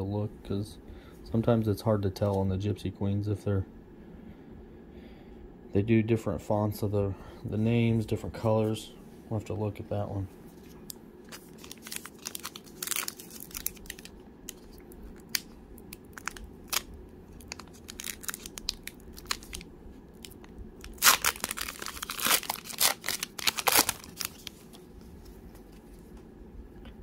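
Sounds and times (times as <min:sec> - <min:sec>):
wrapper crinkling and tearing: 0:11.2 - 0:24.9.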